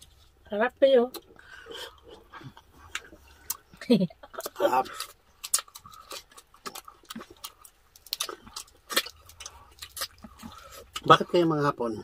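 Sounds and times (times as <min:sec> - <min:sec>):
wet mouth clicks and lip smacks: 0:02.8 - 0:03.8, 0:04.4 - 0:11.1.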